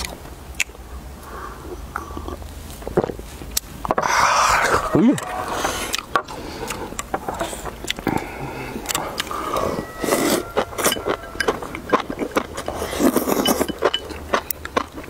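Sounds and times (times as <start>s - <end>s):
people chewing: 0.0s - 15.0s
people slurping: 3.9s - 14.4s
chopsticks clicking on porcelain bowls: 10.6s - 12.8s.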